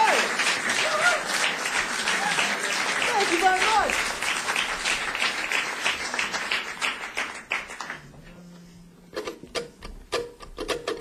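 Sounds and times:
audience clapping in rhythm: 0.0s - 8.2s
plucked string notes: 8.5s - 11.0s.

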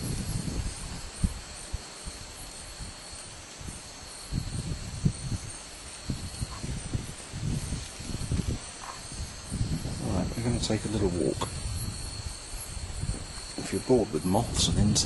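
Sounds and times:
night insects chirring: 0.0s - 15.0s
low bumps and rustling: 6.0s - 15.0s.

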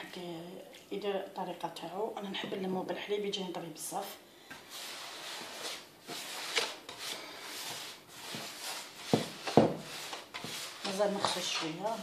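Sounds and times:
hands mixing semolina in bowl: 4.6s - 12.0s.

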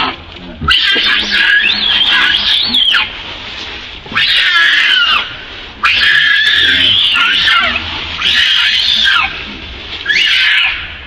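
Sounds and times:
young monkey screaming: 0.0s - 3.1s, 4.1s - 11.0s.

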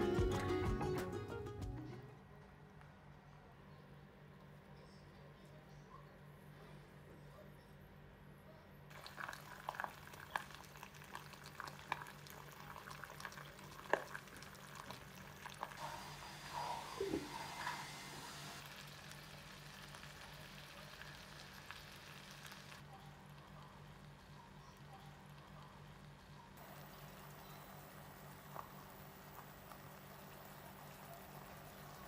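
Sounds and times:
food crackling and sizzling: 8.9s - 32.0s.

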